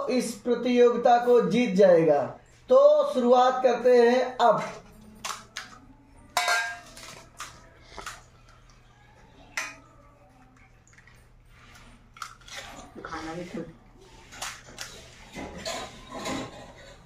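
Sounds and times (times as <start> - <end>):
spoons tapping on metal plates: 5.2 - 8.2.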